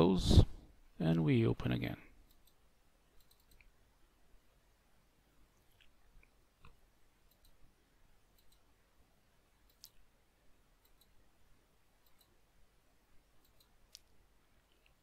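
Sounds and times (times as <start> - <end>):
faint computer clicks: 3.2 - 3.7, 6.6 - 7.6, 8.3 - 8.7, 10.8 - 11.2, 13.4 - 14.1.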